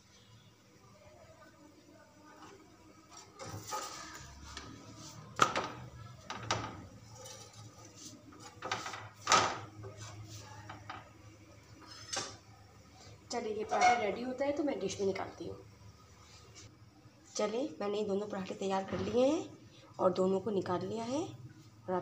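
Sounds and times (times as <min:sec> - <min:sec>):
spatula scraping a griddle: 0:06.9 - 0:08.6.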